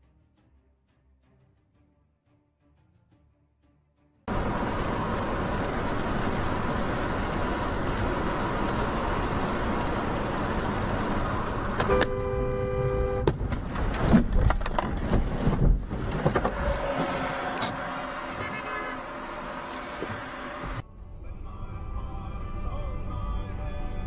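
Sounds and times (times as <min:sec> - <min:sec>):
road and tyre noise: 0:04.3 - 0:23.2
car horn blaring: 0:11.8 - 0:13.4, 0:17.1 - 0:20.5.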